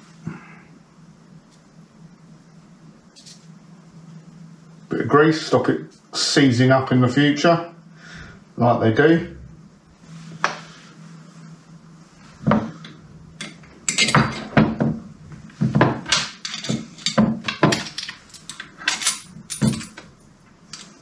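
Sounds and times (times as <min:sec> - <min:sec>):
steel parts clinking and knocking: 0:13.4 - 0:14.8, 0:15.7 - 0:21.0.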